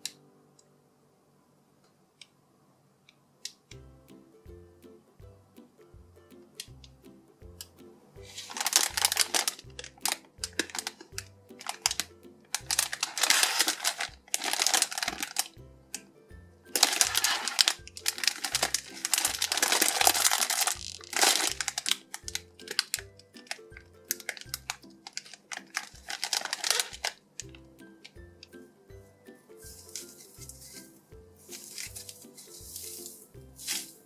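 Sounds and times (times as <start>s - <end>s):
plastic bag crinkling: 8.3s - 15.6s, 16.8s - 28.2s, 29.6s - 34.0s.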